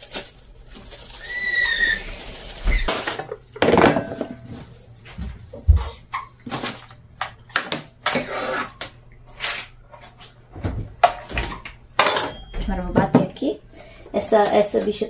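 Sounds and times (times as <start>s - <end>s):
kitchen handling knocks and clicks: 3.2s - 4.5s, 10.6s - 13.4s.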